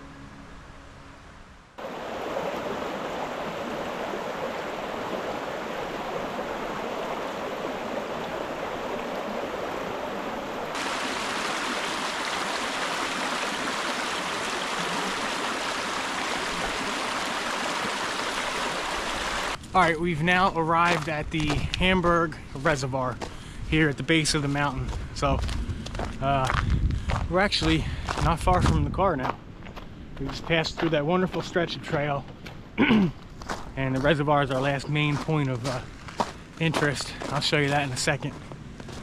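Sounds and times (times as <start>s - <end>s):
creek water rushing: 1.8s - 19.6s.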